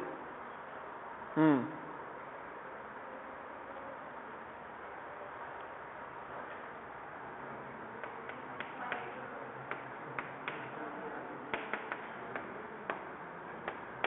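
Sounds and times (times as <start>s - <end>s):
steady background hiss: 0.0s - 14.0s
chalk tapping on a blackboard: 8.0s - 10.8s, 11.5s - 13.9s.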